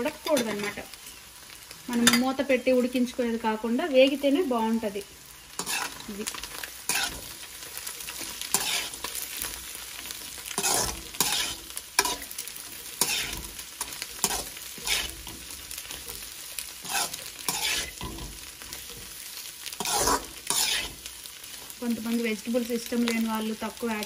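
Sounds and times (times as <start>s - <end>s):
food sizzling in hot oil: 0.0s - 24.0s
metal spatula scraping pan: 0.1s - 0.8s, 5.5s - 21.1s.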